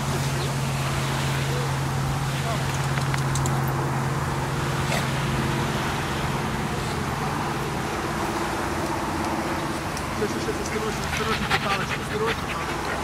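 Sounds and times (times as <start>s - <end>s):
low engine hum: 0.0s - 13.0s.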